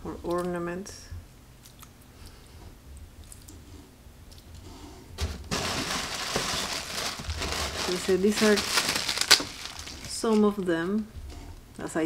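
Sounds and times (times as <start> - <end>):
packaging crinkling: 5.2 - 10.6.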